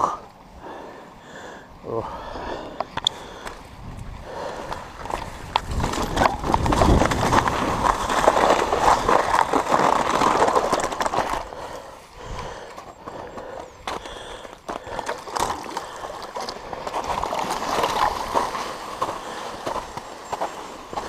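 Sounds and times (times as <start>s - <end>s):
tyre and trail noise: 0.0s - 21.0s
mountain bike rattling: 3.2s - 21.0s.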